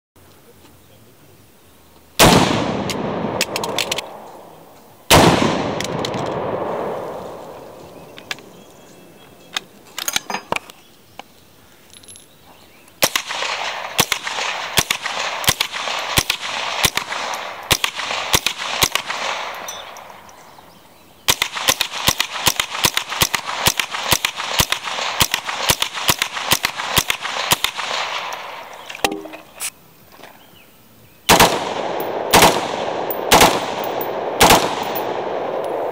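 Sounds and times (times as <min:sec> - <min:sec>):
rapid semi-automatic rifle fire: 0:02.2 - 0:04.2, 0:05.1 - 0:07.2, 0:13.0 - 0:19.6, 0:21.3 - 0:28.6, 0:31.3 - 0:35.9
heavy rifle shot: 0:02.2 - 0:04.3, 0:05.1 - 0:07.6, 0:31.3 - 0:35.6.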